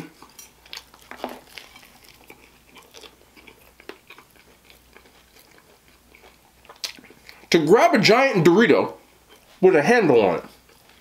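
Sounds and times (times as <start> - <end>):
person chewing food: 0.0 - 7.5, 9.0 - 9.6, 10.5 - 11.0.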